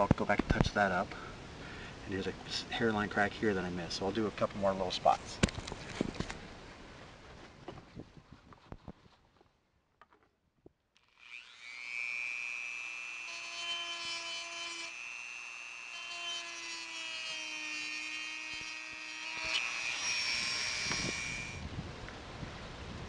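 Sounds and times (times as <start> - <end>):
rotary tool whining: 11.0 - 21.6.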